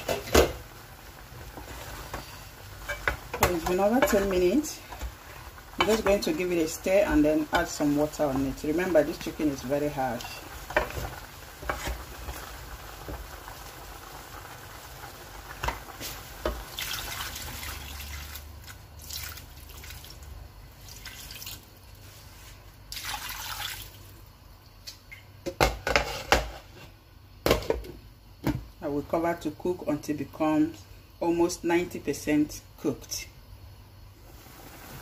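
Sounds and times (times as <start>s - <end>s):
water poured into a pot: 12.2s - 22.0s, 22.9s - 24.2s.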